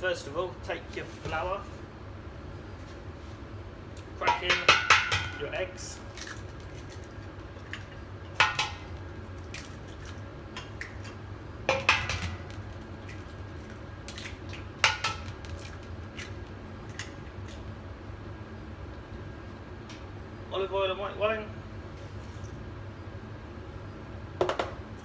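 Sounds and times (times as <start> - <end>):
eggs knocking on metal bowl: 4.2 - 5.5, 8.3 - 9.0, 11.7 - 12.8, 14.8 - 15.6, 24.4 - 24.8.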